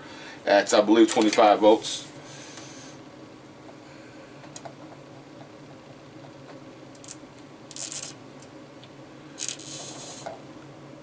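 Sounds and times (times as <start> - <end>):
steady low hum: 0.0 - 11.0
soldering iron hissy scraping: 9.4 - 10.4.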